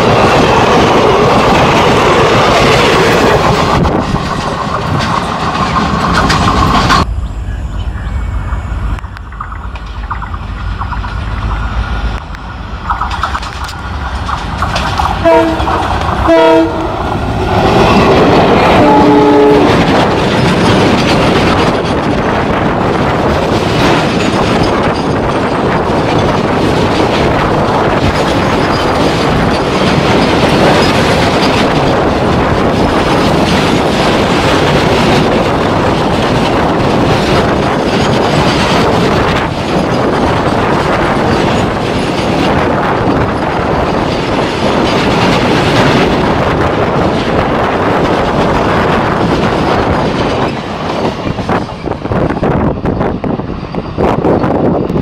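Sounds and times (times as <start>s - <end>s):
train wheels clattering on rails: 0.0s - 7.1s, 7.9s - 55.0s
diesel locomotive passing: 0.0s - 55.0s
locomotive horn blast: 15.2s - 17.0s, 18.7s - 19.8s.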